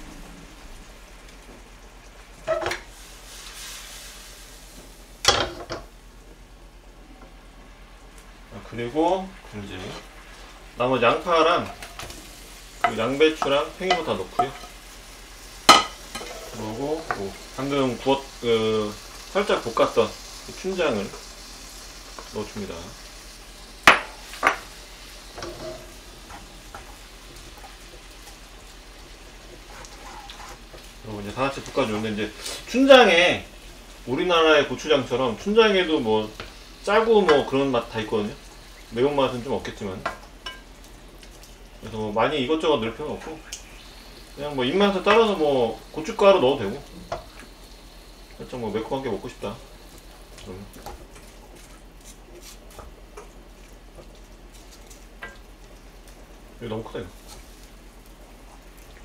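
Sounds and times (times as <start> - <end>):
faint sizzle: 0.0 - 59.0
utensils clinking against frying pan: 15.7 - 16.5.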